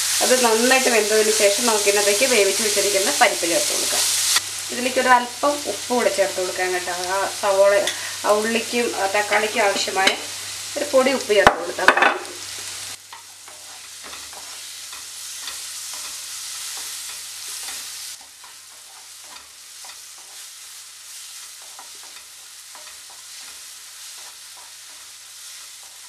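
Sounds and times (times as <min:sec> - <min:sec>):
oil sizzling: 0:00.0 - 0:26.0
wooden spatula scraping a pan: 0:13.1 - 0:26.0.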